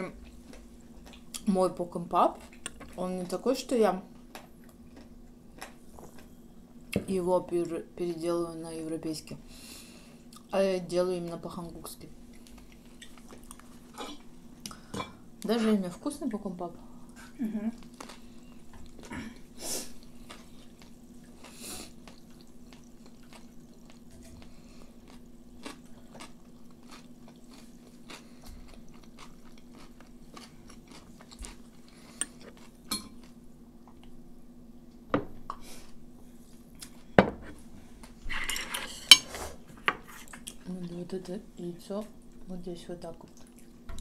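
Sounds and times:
quiet chewing: 0.2s - 1.5s, 4.2s - 6.4s, 12.2s - 14.8s, 17.1s - 34.2s, 43.2s - 44.0s.

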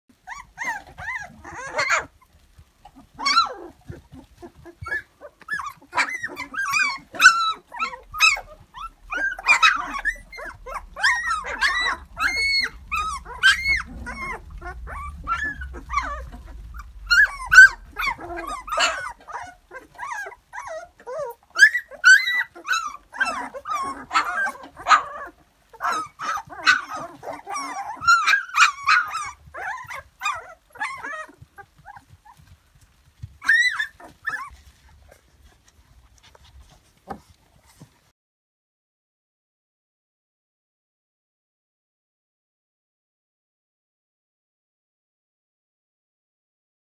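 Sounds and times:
puppies whining and squeaking: 0.2s - 32.6s, 33.2s - 37.9s.

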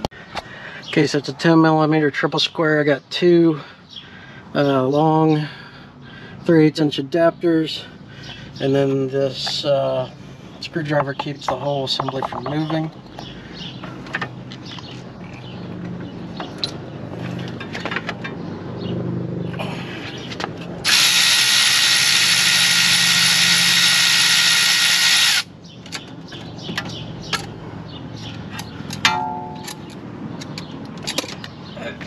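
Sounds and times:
power tool running: 20.8s - 25.5s
metallic clicks of tools: 28.5s - 31.6s.

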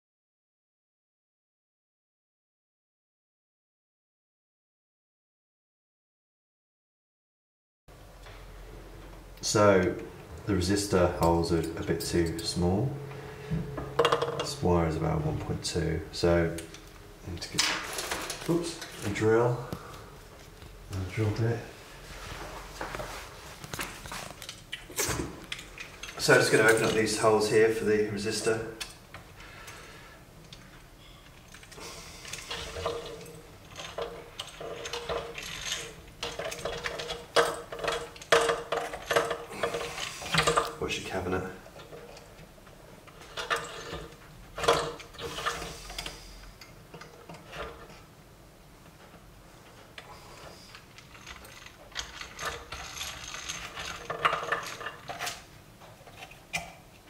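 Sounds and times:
hand drill gears whirring and clicking: 31.5s - 40.7s, 51.0s - 55.4s
hand drill gears whirring: 38.9s - 40.7s, 51.0s - 54.9s.

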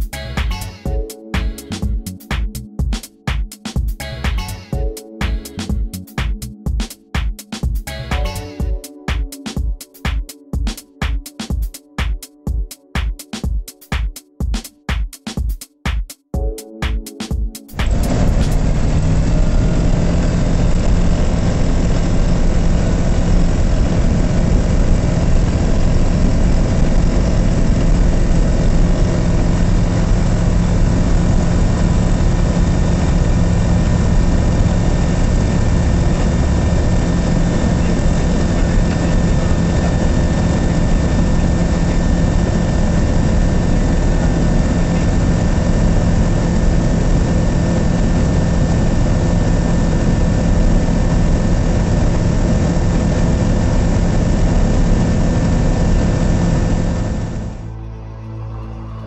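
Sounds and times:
propeller engine drone: 17.8s - 57.7s.

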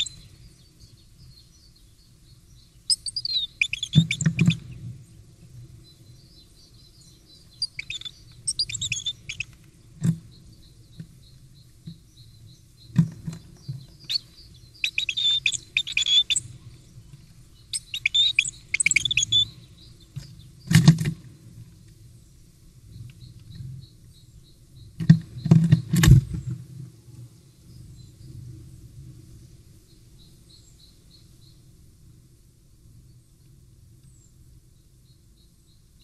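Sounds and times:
bird chirping: 0.0s - 20.8s.

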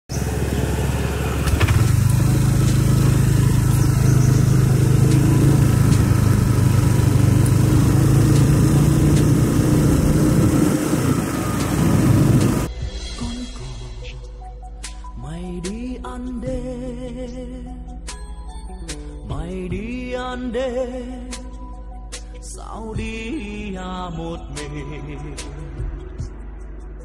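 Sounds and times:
motorbike engine running: 0.1s - 12.7s
road noise: 0.1s - 12.7s.

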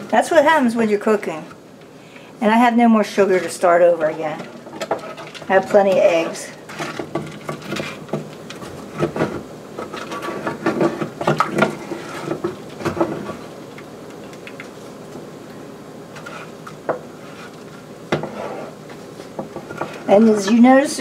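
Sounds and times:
wooden spoon stirring in saucepan: 0.0s - 15.1s, 16.1s - 21.0s.

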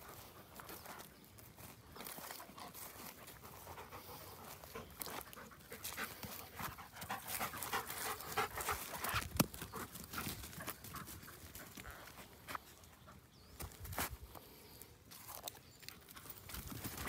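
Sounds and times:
dog panting: 2.4s - 12.2s.

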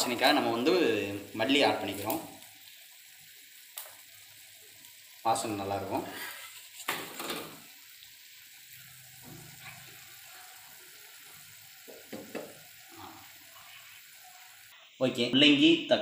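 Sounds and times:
thick sauce simmering: 0.2s - 14.8s.

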